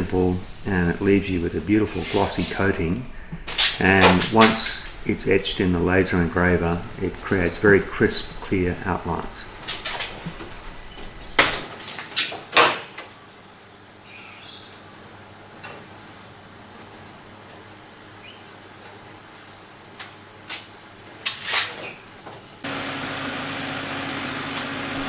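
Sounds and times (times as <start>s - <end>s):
steady high whine: 0.0s - 11.5s
laser engraver hum and fan hiss: 22.6s - 25.0s.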